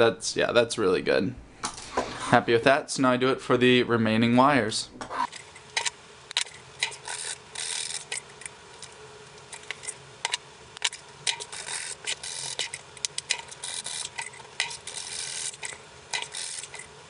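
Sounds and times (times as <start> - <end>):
metal file scraping wire: 5.2 - 17.0
metal tools clicking: 5.3 - 17.0.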